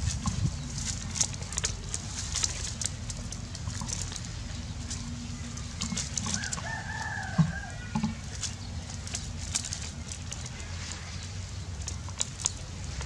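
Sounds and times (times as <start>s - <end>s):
distant rooster crowing: 6.2s - 8.5s
faint crackling clicks: 11.8s - 13.0s.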